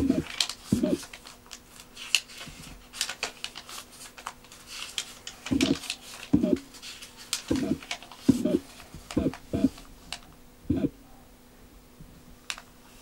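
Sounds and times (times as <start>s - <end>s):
paper pages rustling: 0.0s - 10.3s.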